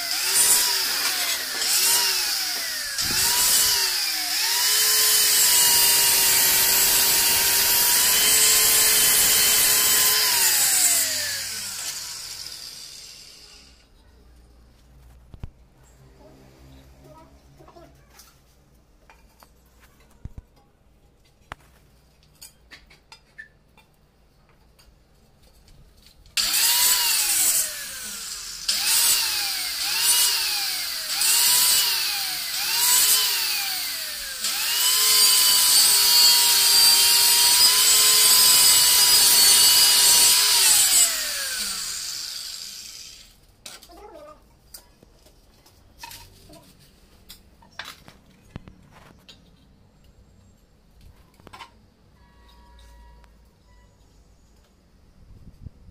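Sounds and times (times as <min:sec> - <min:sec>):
electric tile cutter whining: 0:00.0 - 0:13.9, 0:26.4 - 0:43.4.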